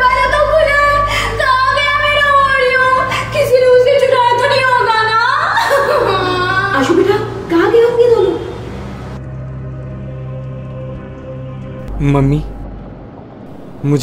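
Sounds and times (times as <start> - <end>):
woman singing wavering tones: 0.0 - 7.2
low musical hum: 0.0 - 14.0.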